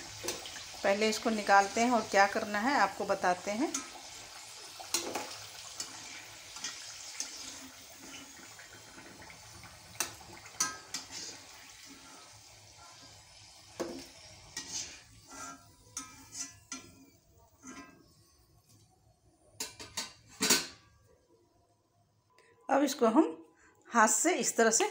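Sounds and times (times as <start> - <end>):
oil sizzling and bubbling: 0.0 - 21.4
metal spatula clinking: 14.6 - 18.0.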